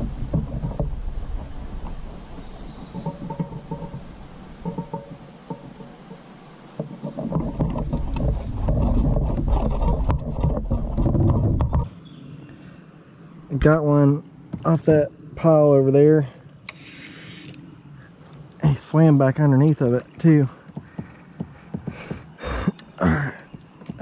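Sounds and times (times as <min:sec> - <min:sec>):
wind on microphone: 0:00.0 - 0:05.9, 0:06.8 - 0:12.0
water splashing around kayak: 0:00.0 - 0:12.0, 0:16.3 - 0:22.7.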